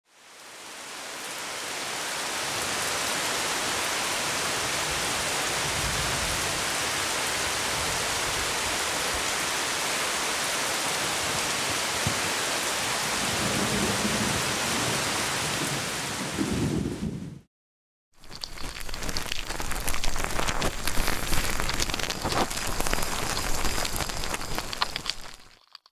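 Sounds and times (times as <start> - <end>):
rain spattering on a surface: 0.1 - 15.9, 18.2 - 25.9
heavy rain: 0.1 - 17.5, 18.2 - 25.5
thunder rumbling: 13.2 - 17.5.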